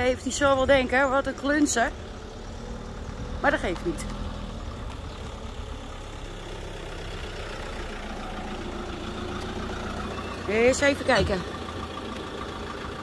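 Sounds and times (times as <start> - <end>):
motorhome engine idling: 0.0 - 13.0.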